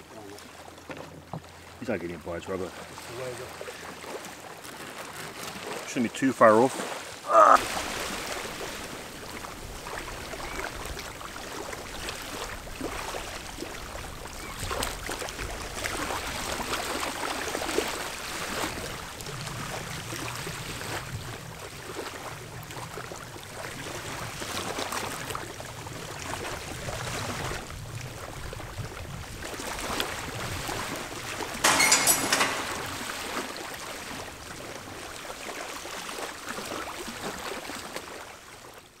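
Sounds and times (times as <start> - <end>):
small waves lapping on sand: 0.0 - 31.8, 32.4 - 39.0
short rush of water: 2.7 - 21.2.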